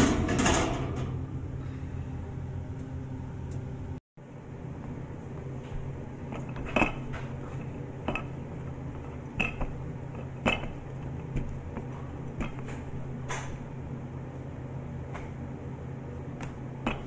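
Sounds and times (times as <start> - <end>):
low hum: 0.0 - 17.0.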